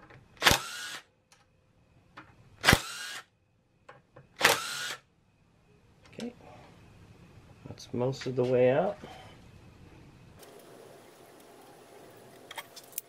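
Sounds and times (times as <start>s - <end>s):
impact gun bursts with motor whine: 0.4s - 1.1s, 2.6s - 3.3s, 4.4s - 5.1s.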